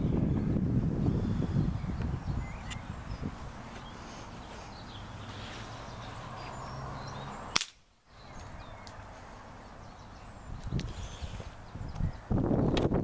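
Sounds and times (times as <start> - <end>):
wind noise on microphone: 0.0 - 5.1, 9.9 - 13.0
air rifle shot crack: 7.5 - 7.8.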